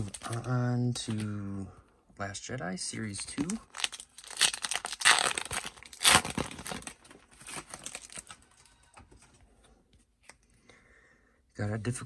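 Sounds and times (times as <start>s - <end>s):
foil wrapper tearing and crinkling: 3.4s - 8.5s.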